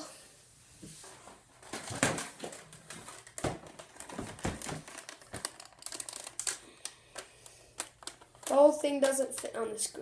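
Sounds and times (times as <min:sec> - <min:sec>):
plastic knocks and clicks: 0:01.7 - 0:06.6.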